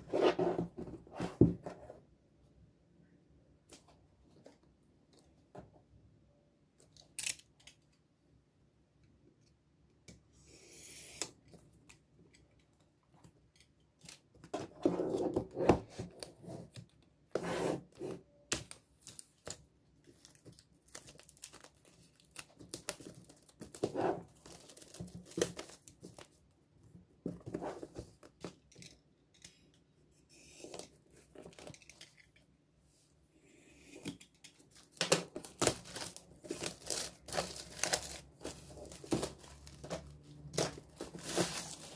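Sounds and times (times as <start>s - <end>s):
plastic wrap tearing and crinkling: 20.2s - 25.9s, 34.7s - 41.9s.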